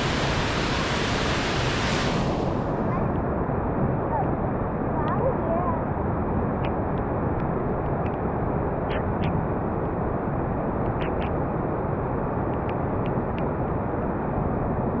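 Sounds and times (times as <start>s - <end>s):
river rushing over rapids: 0.0s - 3.7s.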